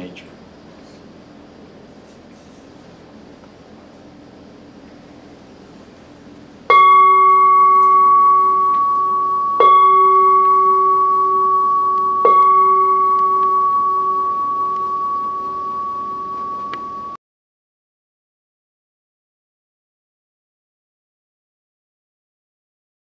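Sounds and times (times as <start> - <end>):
large bell-bowl ringing: 6.7 - 17.2.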